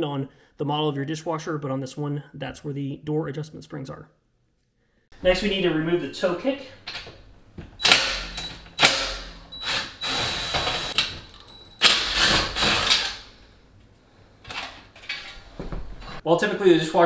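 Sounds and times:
cordless driver motor whine: 9.6s - 11.0s.

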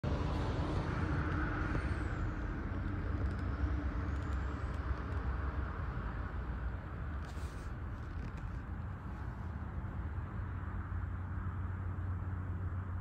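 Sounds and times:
low rumble of motor traffic: 0.0s - 13.0s.

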